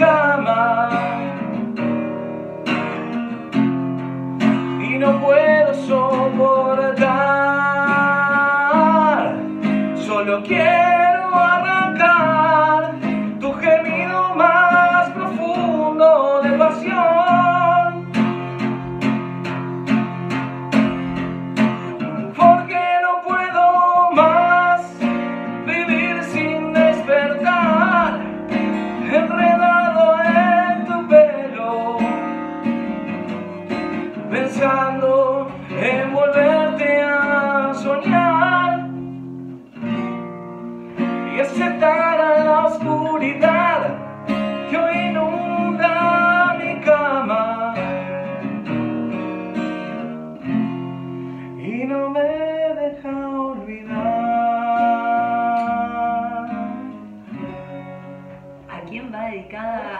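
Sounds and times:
man singing a slow ballad: 0.0s - 1.6s, 4.6s - 18.6s, 21.6s - 32.7s, 33.8s - 39.2s, 41.0s - 48.8s, 51.5s - 57.5s
acoustic guitar strumming: 0.0s - 59.9s.

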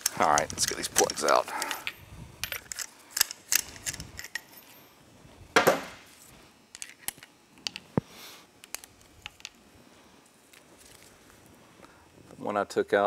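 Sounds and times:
ratchet metal clicks and clinks: 0.0s - 4.6s.

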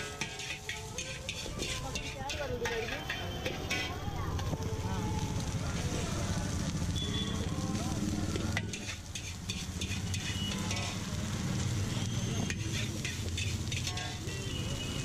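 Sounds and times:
metal spatula scraping a pan: 0.0s - 4.1s, 8.3s - 15.0s
rice sizzling in a wok: 0.0s - 15.0s.

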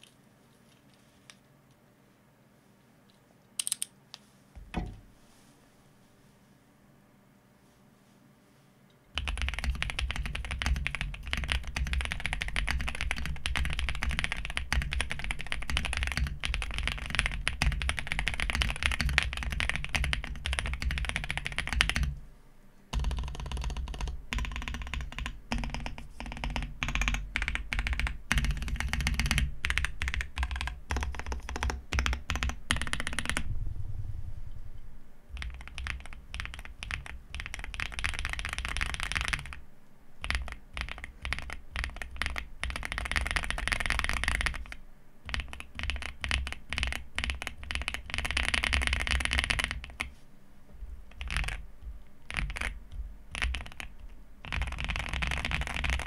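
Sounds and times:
mechanical keyboard typing: 3.6s - 3.9s, 9.2s - 22.2s, 23.0s - 33.5s, 35.4s - 39.6s, 40.2s - 50.1s, 51.1s - 51.6s, 52.2s - 56.0s.

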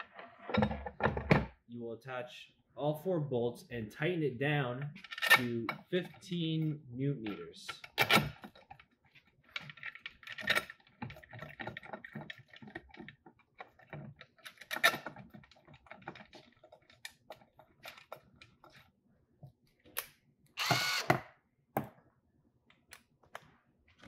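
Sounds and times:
metal parts clicking and tapping: 7.2s - 18.9s.

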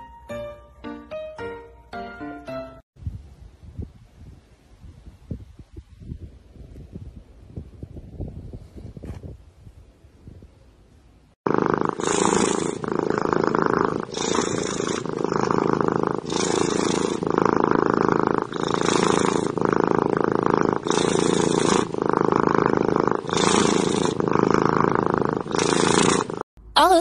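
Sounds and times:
cat purring loudly: 11.4s - 26.5s.

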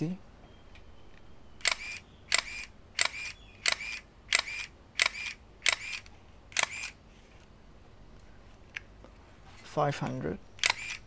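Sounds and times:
camera motor whir: 1.6s - 7.0s, 10.6s - 11.0s
camera shutter click: 1.6s - 7.0s, 10.6s - 11.0s.

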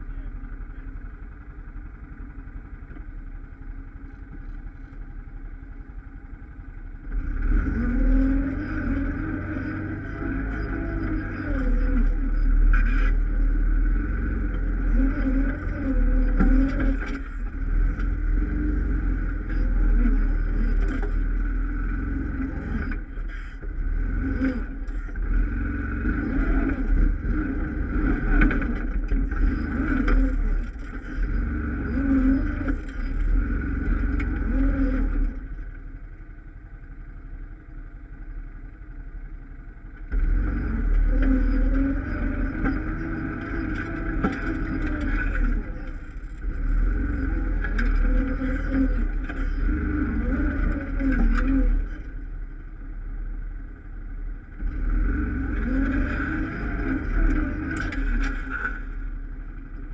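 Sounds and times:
atv engine revving: 7.1s - 35.7s, 40.1s - 52.5s, 54.4s - 59.9s.

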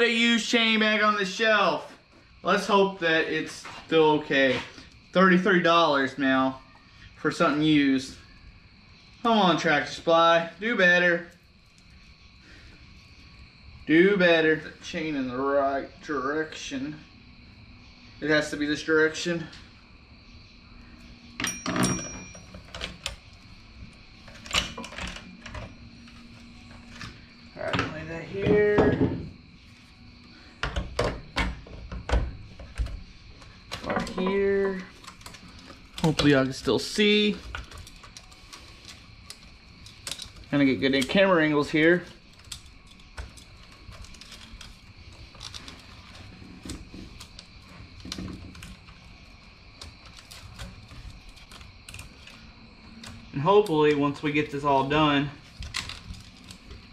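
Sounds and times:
steel chain links clinking on wood: 21.4s - 23.3s.

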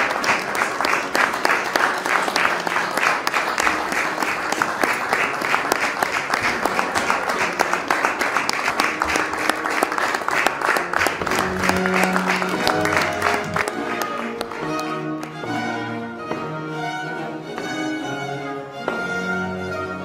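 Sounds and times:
group clapping in rhythm: 0.0s - 15.6s.

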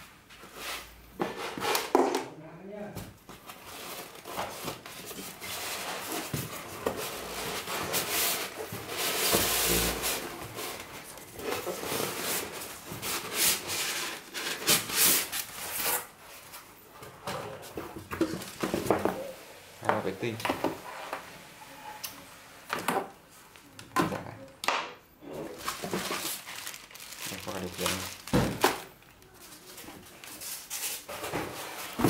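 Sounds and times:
cardboard and foam rustling: 3.0s - 21.3s, 25.4s - 32.0s.

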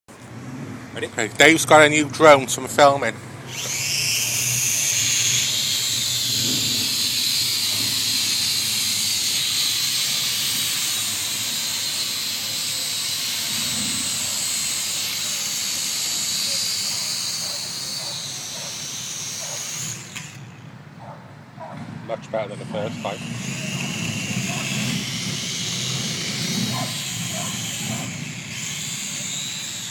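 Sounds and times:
toy quadcopter propellers whirring: 1.2s - 21.7s, 22.3s - 29.9s.

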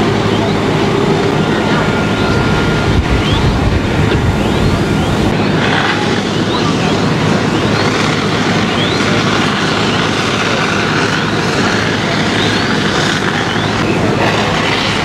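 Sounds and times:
fire engine hum: 0.0s - 15.0s
hose spraying water: 4.0s - 15.0s.

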